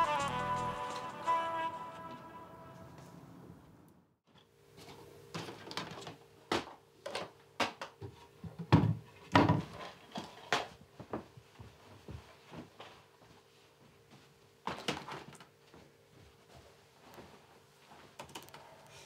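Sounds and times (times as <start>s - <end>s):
objects knocking and clattering in cabinet: 5.4s - 10.8s.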